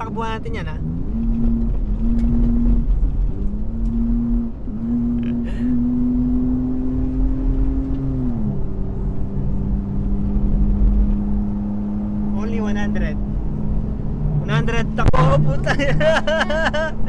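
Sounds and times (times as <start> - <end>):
off-road vehicle engine under load: 0.0 - 17.0.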